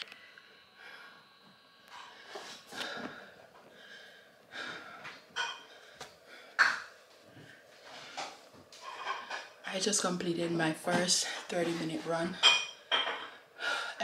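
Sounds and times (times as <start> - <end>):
woman breathing hard: 2.1 - 8.4, 13.4 - 14.0.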